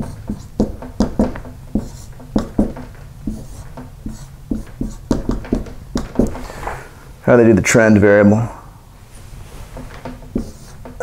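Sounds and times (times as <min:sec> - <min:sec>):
marker writing on whiteboard: 0:00.0 - 0:06.6, 0:09.7 - 0:11.0.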